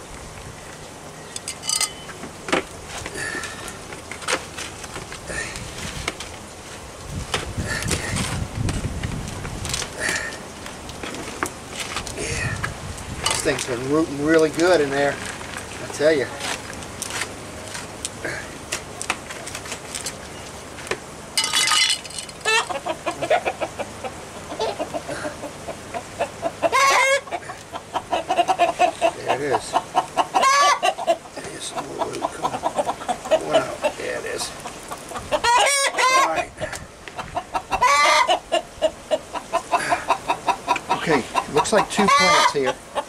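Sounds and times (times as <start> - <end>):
chicken cackling: 22.4 - 43.0
chickens clucking: 22.4 - 43.0.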